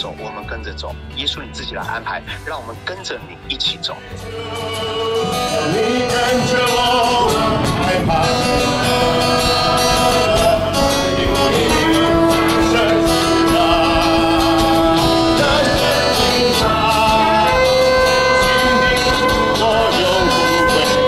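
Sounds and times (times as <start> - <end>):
amplified backing music: 0.0 - 21.0
group singing worship song: 4.0 - 21.0
shofar blast: 4.6 - 21.0.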